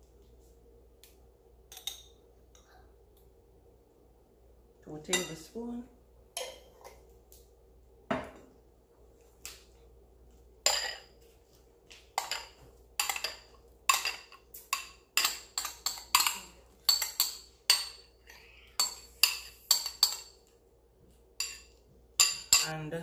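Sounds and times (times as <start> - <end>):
metal spoon clinking on bowl: 5.1 - 5.5, 12.2 - 18.1, 18.8 - 20.4, 21.4 - 22.9.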